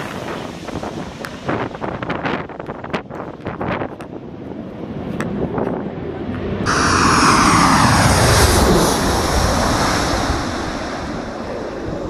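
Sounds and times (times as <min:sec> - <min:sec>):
jet engine whine: 0:04.2 - 0:12.0
jet plane passing overhead: 0:04.3 - 0:12.0.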